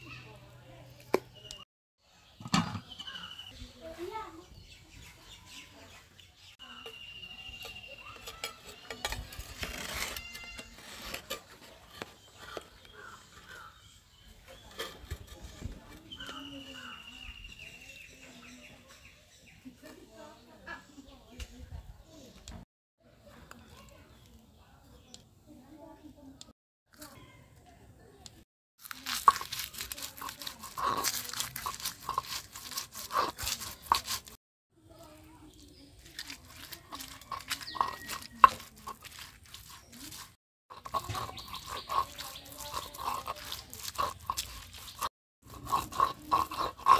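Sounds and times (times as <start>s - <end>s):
stone pestle crunching and scraping: 7.4s - 13.8s, 28.8s - 34.4s, 35.5s - 46.9s
dried chillies cracking: 28.8s - 34.4s, 35.0s - 46.9s
spoon clinking on clay pot: 36.4s - 46.9s.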